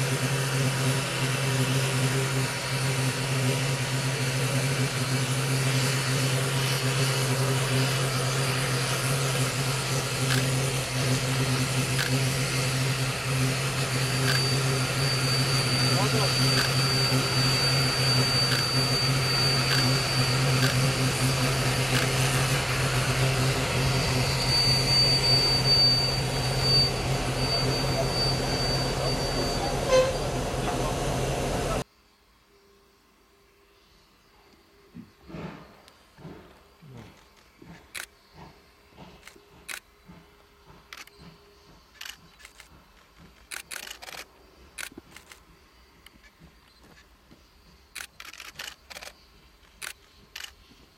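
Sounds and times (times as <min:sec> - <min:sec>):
diesel locomotive engine droning: 0:00.0 - 0:31.9, 0:33.6 - 0:50.9
steady high tone: 0:04.5 - 0:31.8
camera shutters clicking: 0:43.5 - 0:45.4.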